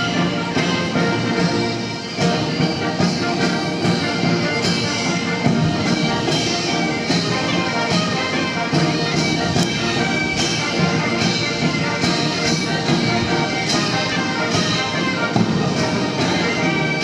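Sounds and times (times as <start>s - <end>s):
military brass band march: 0.0s - 17.0s
steady drum beat: 0.0s - 17.0s.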